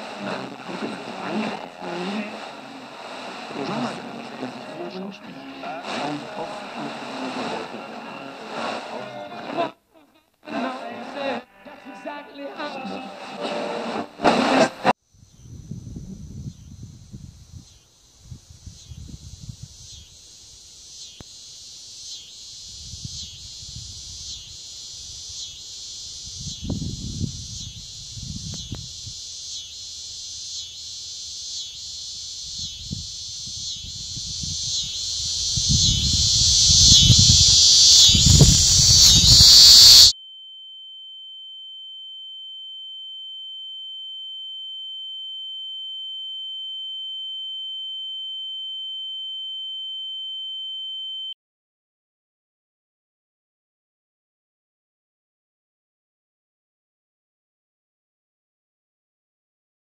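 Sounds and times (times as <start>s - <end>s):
high-pitched pure tone: 0.0s - 9.7s, 10.5s - 14.9s, 19.8s - 40.2s
insect-like chirring: 15.2s - 40.2s.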